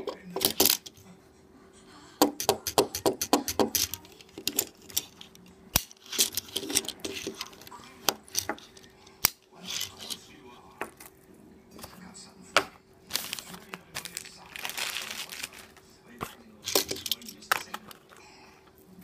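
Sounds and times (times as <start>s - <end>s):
toy car clicking on a wooden table: 2.2s - 5.1s.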